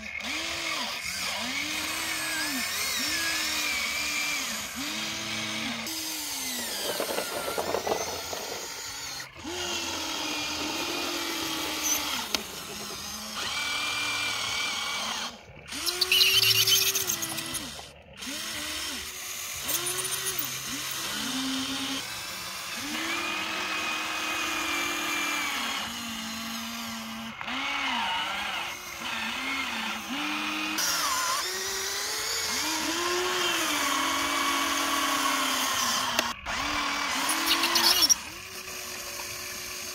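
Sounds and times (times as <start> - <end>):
small electric motors whining: 0.0 - 39.9
loud rattle: 5.8 - 14.6.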